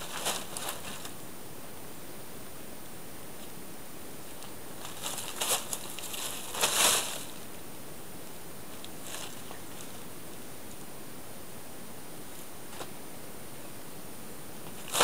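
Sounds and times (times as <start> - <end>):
plastic tarp crinkling: 0.0 - 1.1, 4.8 - 7.4
steady background hiss: 0.0 - 15.0.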